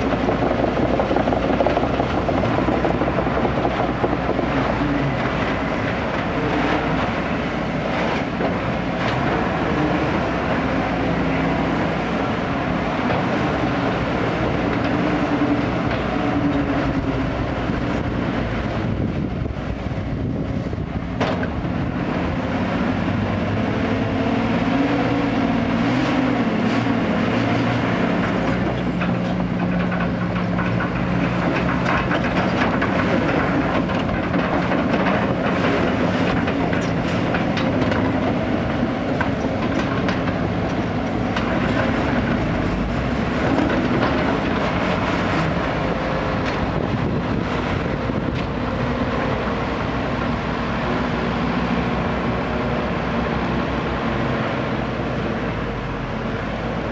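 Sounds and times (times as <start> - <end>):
dump truck engine running: 0.0 - 56.9
excavator diesel engine: 0.0 - 56.9
scattered knocks and clanks: 21.2 - 21.6, 28.3 - 42.6.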